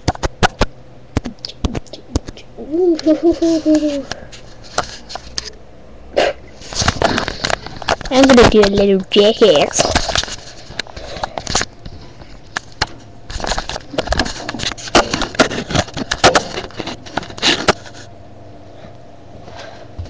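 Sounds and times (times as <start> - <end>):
sharp knocks and scrapes: 3.8 - 5.5, 9.7 - 18.1.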